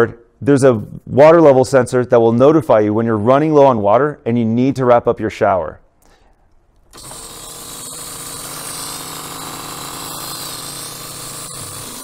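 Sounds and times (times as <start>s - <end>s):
electric pump humming: 6.9s - 12.0s
pump gurgling: 7.0s - 12.0s.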